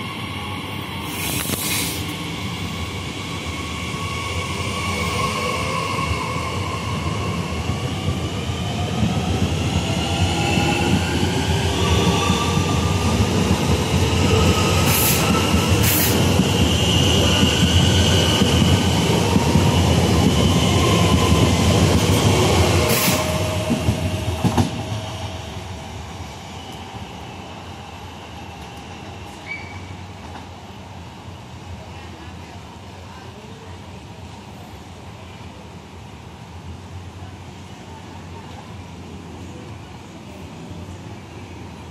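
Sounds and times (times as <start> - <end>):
train wheels rumbling on rail: 3.4 - 26.9.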